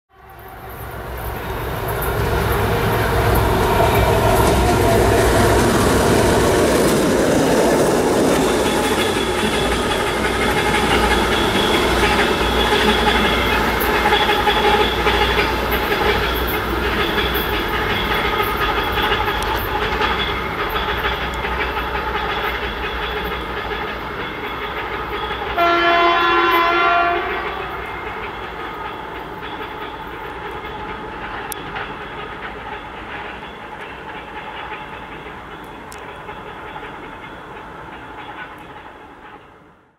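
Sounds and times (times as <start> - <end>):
diesel locomotive engine: 0.1 - 39.9
wheels clattering over rail joints: 0.7 - 39.6
locomotive horn: 25.5 - 28.2.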